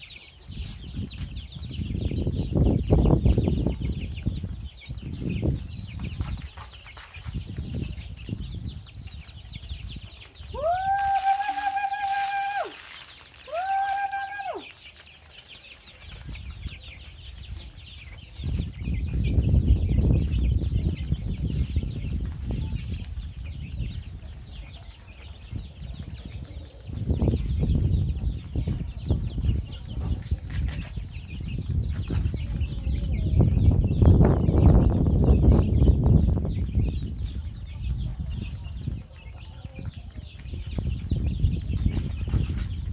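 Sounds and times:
chicks peeping and clucking: 0.0s - 42.9s.

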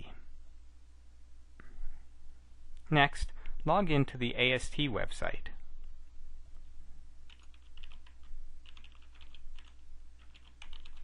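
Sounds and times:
computer keyboard typing: 7.3s - 11.0s.

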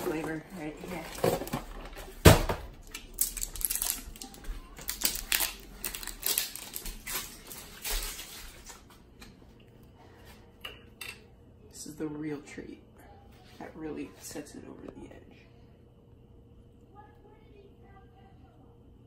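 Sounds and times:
plastic bags crinkling: 0.0s - 9.0s.

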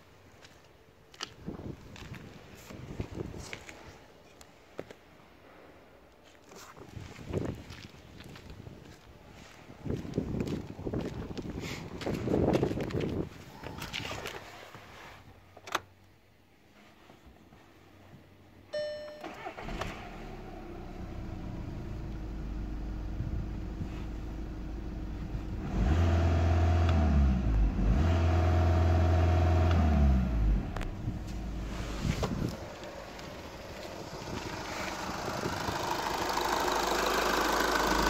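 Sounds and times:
diesel engine starting: 19.1s - 38.0s
diesel engine revving: 19.4s - 38.0s
diesel engine idling: 32.5s - 38.0s.

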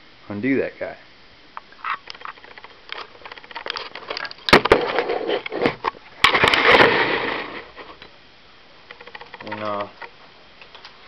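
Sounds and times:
scraping rustle: 1.7s - 8.0s.

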